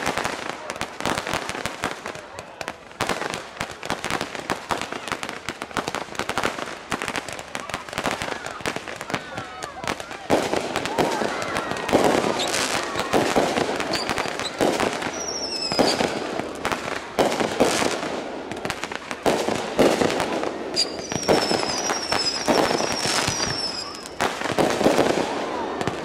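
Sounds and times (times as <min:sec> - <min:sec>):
firework whistles sliding down: 0:13.9 - 0:16.0, 0:20.7 - 0:24.2
firework shells bursting: 0:19.5 - 0:24.9.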